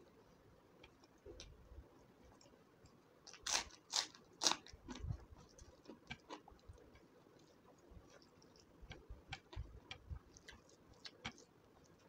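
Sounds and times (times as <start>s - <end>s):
faint crackles and clicks: 0.1s - 12.0s
crunching crispy fried food: 3.2s - 12.0s.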